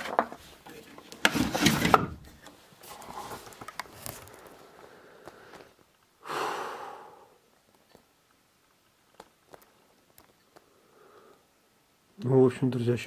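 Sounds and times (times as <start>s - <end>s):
rustling: 0.0s - 6.1s.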